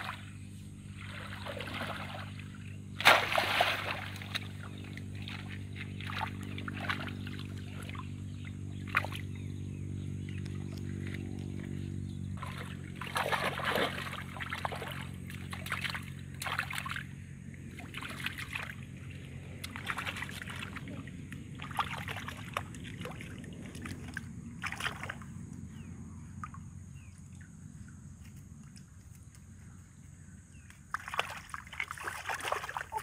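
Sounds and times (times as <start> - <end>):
shallow water sloshing and splashing: 0.0 - 9.4, 12.4 - 25.5, 30.9 - 33.0
low motor hum: 0.0 - 33.0.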